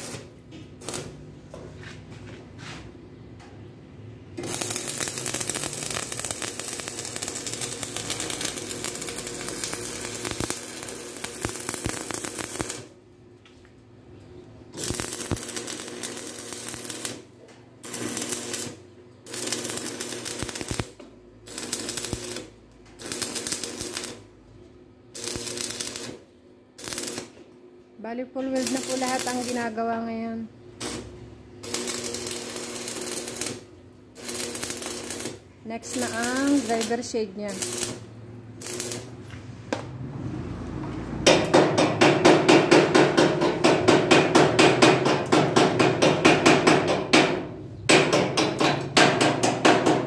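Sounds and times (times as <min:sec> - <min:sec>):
welding arc crackling: 0:00.0 - 0:01.3, 0:04.4 - 0:13.0, 0:14.8 - 0:24.3, 0:25.1 - 0:27.4, 0:28.4 - 0:29.9, 0:30.8 - 0:39.2.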